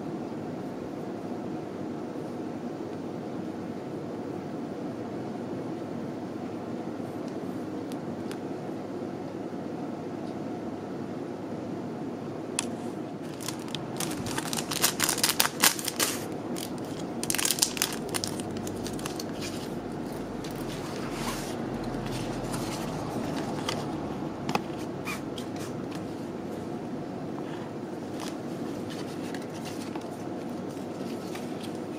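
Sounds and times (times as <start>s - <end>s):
steady low background hum: 0.0s - 31.9s
sheet and paper rustling: 13.2s - 19.8s, 28.1s - 31.9s
plastic packaging crinkling: 13.2s - 21.3s.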